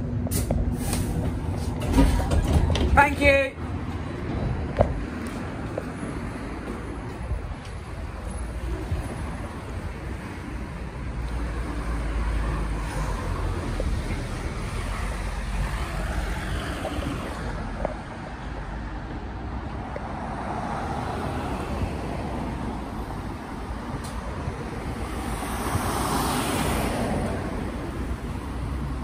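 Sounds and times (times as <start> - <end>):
bus road and tyre rumble: 0.0 - 29.0.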